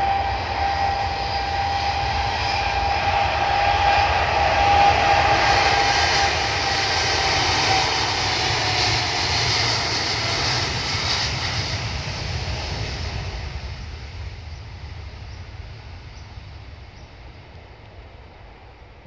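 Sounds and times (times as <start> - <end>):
high steady whine: 0.0 - 19.0
jet engine roar on takeoff: 0.0 - 19.0.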